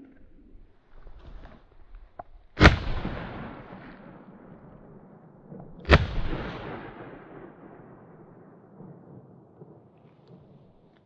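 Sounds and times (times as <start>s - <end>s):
shotgun blasts echoing: 2.6s - 11.0s.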